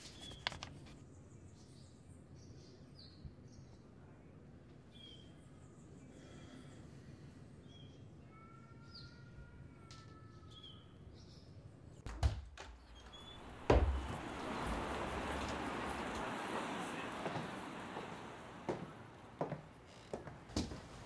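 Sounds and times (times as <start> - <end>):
faint bird chirps: 1.1 - 11.5
door thuds: 12.1 - 17.6.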